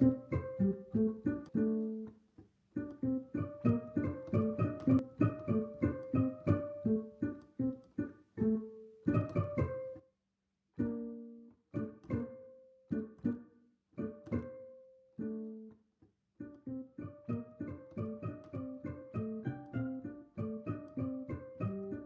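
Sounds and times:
plucked string instrument music: 0:00.0 - 0:10.1, 0:10.8 - 0:15.8, 0:16.4 - 0:22.0.

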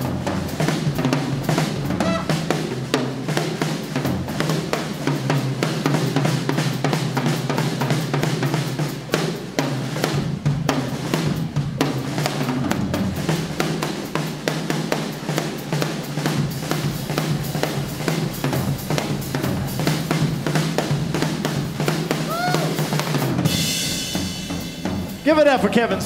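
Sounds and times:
bass drum: 0:00.0 - 0:03.2
cymbals: 0:00.0 - 0:26.0
rapid snare drum rolls: 0:00.0 - 0:26.0.

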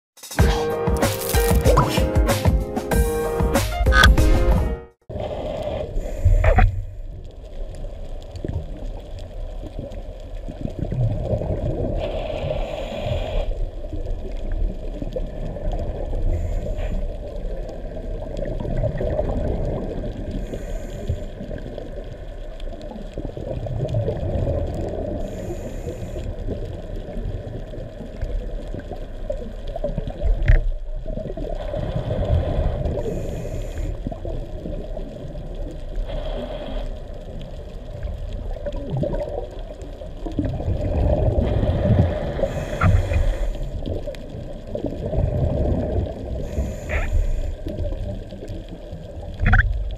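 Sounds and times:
underwater rumble and gurgle: 0:05.0 - 0:49.9
breath through scuba regulator: 0:05.1 - 0:06.7, 0:11.9 - 0:13.6, 0:20.3 - 0:21.4, 0:25.2 - 0:26.5, 0:31.6 - 0:34.2, 0:36.0 - 0:37.2, 0:41.4 - 0:43.8, 0:46.4 - 0:47.6.

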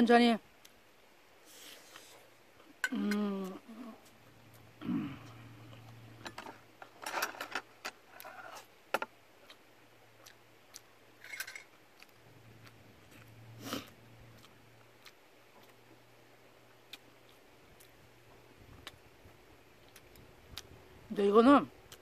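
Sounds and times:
chewing and mouth noises: 0:09.4 - 0:21.0, 0:21.8 - 0:22.0.

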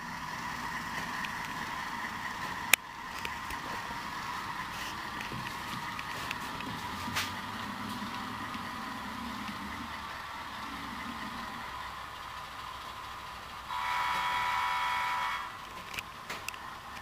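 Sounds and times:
model train diesel engine sound: 0:00.0 - 0:17.0
train horn blast: 0:13.7 - 0:15.6.

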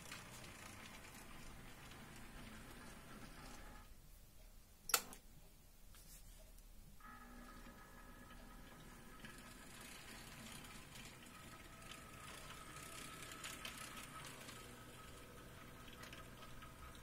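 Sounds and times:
wheels clicking on track: 0:00.0 - 0:03.8, 0:07.6 - 0:17.0
model train motor whine: 0:00.0 - 0:03.9, 0:07.0 - 0:17.0.

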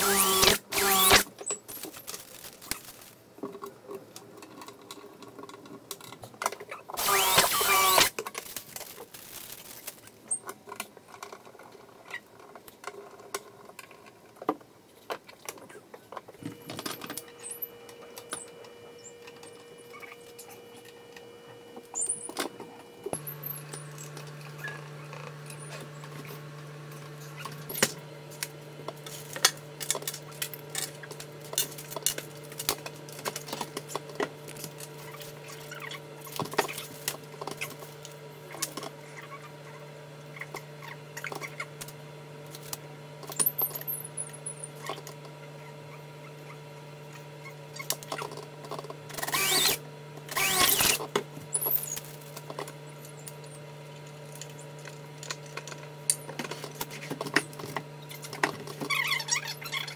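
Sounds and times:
steady low hum: 0:16.4 - 0:59.9.

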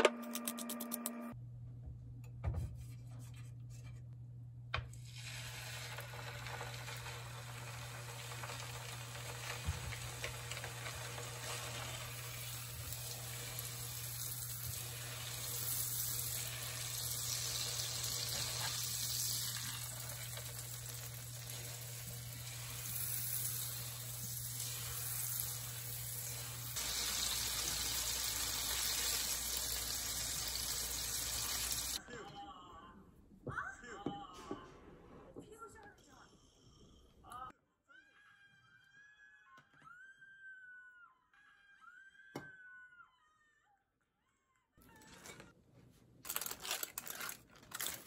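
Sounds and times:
steak sizzling in a frying pan: 0:05.1 - 0:32.0.

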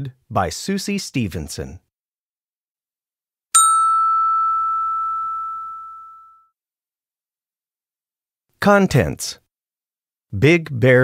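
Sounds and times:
bright chime ringing: 0:03.6 - 0:06.4.

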